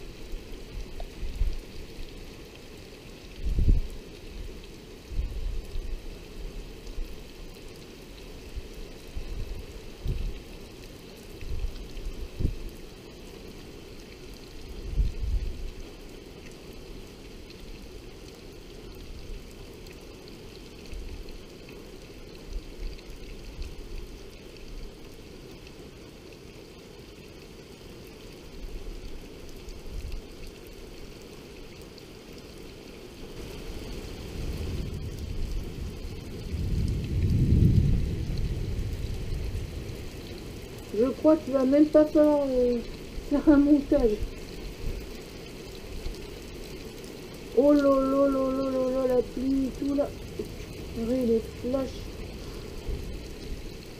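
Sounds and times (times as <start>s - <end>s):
heavy rain falling: 0.0s - 53.9s
low thunder rumbles: 34.3s - 44.3s.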